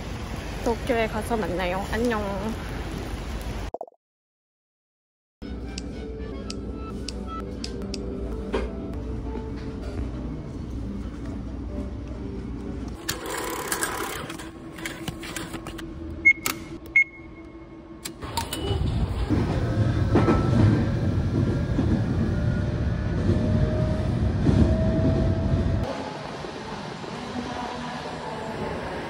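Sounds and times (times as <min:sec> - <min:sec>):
train running inside carriage: 0:00.0 - 0:03.4, 0:05.5 - 0:17.2, 0:18.0 - 0:29.0
short electronic beeps: 0:16.2 - 0:17.5.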